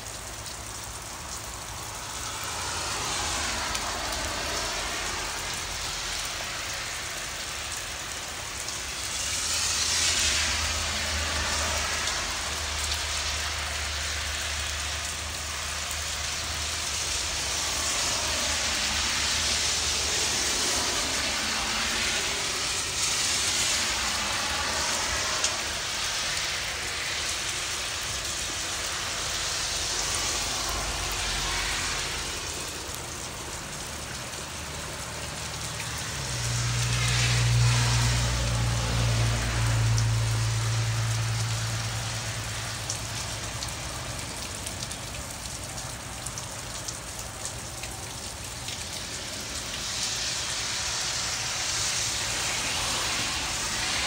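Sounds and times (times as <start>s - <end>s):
steady rain hiss: 0.0s - 54.0s.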